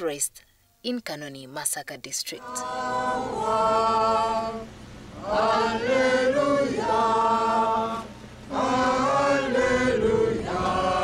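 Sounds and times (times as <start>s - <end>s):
group singing a hymn: 2.4s - 11.0s.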